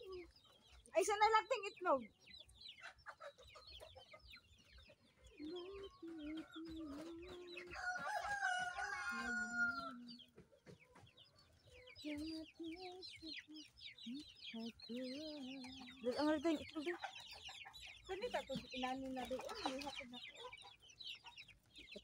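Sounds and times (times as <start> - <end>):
chicks peeping: 0.0 - 22.0
hens clucking: 0.0 - 22.0
rooster crowing: 7.7 - 10.1.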